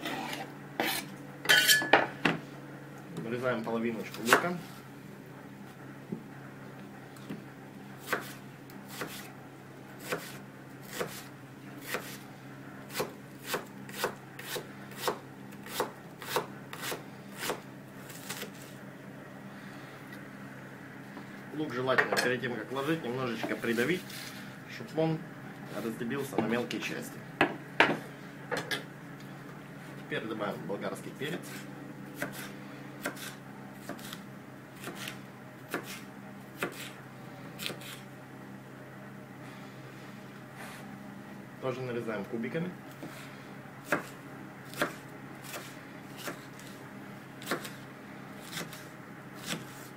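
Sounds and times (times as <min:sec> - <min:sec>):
knife chopping on wooden board: 0:08.0 - 0:09.3, 0:10.0 - 0:12.2, 0:12.9 - 0:17.6, 0:32.2 - 0:34.2, 0:34.8 - 0:36.0, 0:36.6 - 0:37.0, 0:43.8 - 0:46.8, 0:47.4 - 0:47.8, 0:48.4 - 0:48.8, 0:49.4 - 0:49.9.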